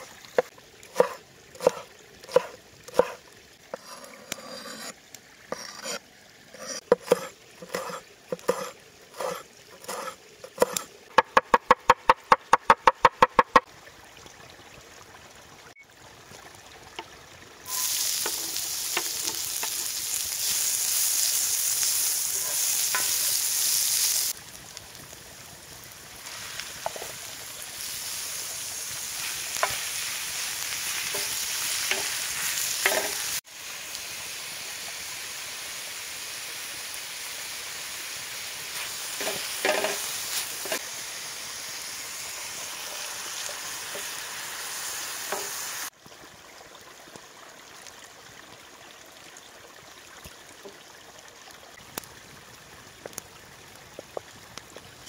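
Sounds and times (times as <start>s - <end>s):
food sizzling in a pan: 5.5s - 10.8s, 17.6s - 46.0s
fat popping and clicking: 11.1s - 13.7s.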